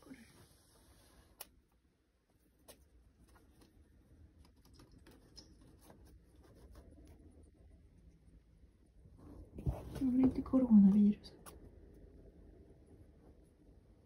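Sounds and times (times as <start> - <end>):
rat ticks and scratches: 1.2 - 8.7.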